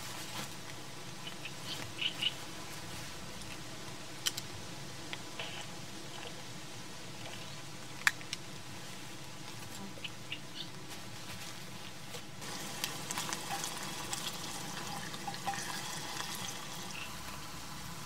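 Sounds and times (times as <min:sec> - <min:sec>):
vegetables sizzling in a pot: 0:12.4 - 0:18.0.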